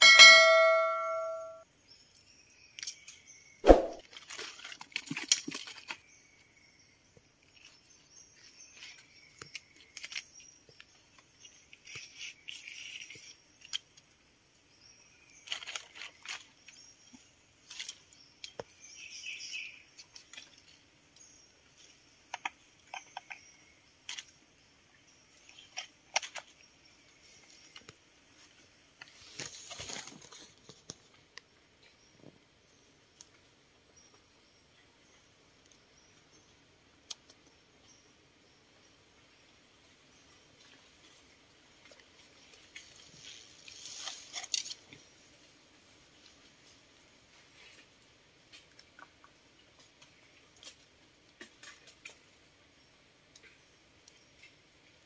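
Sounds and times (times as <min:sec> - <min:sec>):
thin steady high tone: 0:00.0 - 0:01.6
sharp thump: 0:03.6 - 0:04.0.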